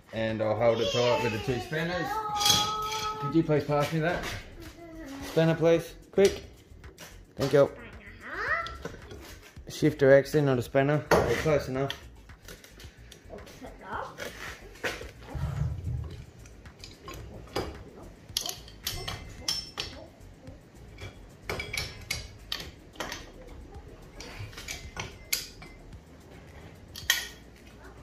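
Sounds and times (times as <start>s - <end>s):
wrench clinking on metal: 2.3s - 3.9s, 16.1s - 26.0s, 26.9s - 27.7s.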